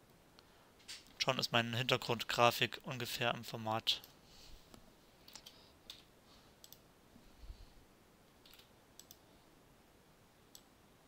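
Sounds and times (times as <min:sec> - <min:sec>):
computer mouse clicks: 0:05.2 - 0:06.9, 0:08.4 - 0:09.2.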